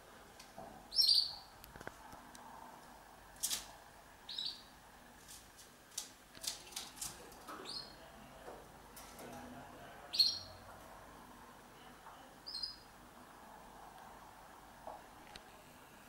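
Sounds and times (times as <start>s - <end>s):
canary chirps: 0.9s - 1.5s, 4.3s - 4.7s, 7.6s - 8.1s, 10.1s - 10.6s, 12.4s - 13.0s
wing rustles: 5.1s - 7.7s.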